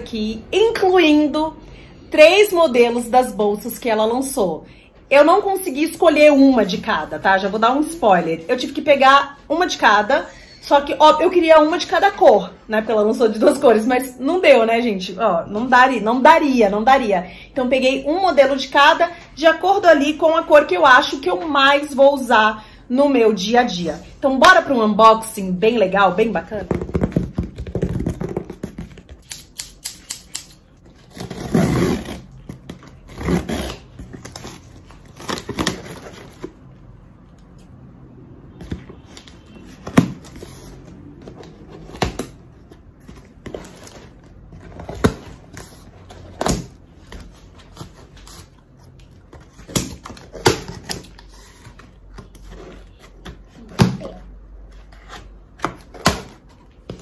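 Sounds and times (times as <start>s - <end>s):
scissors cutting tape and cardboard: 29.2s - 34.5s.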